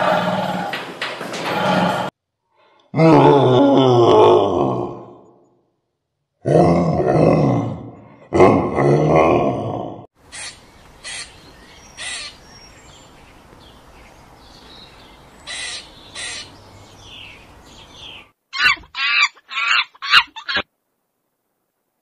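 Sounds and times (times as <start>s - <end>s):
faint outdoor background: 1.6s - 22.0s
squirrel barking calls: 10.2s - 20.7s
animal quick calls: 18.5s - 20.7s.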